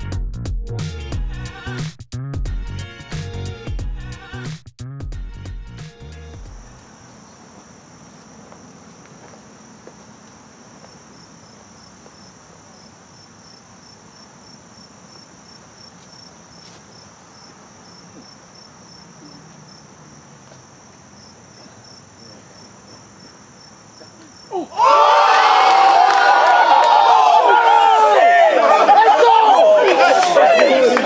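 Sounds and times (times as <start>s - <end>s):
high-pitched insect chorus: 6.4s - 24.8s
crowd cheering and shouting: 24.6s - 31.0s.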